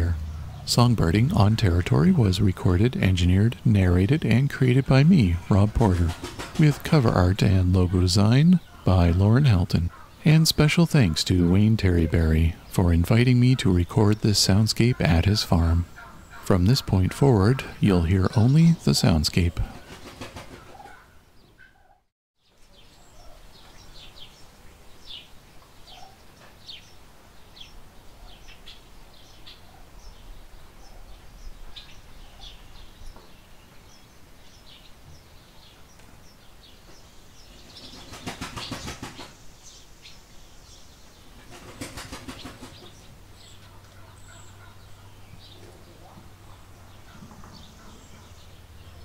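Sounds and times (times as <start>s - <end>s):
small birds chirping: 0.0s - 49.0s
rapid wing flapping: 6.0s - 6.7s, 19.7s - 20.9s, 37.7s - 39.4s, 41.4s - 43.0s.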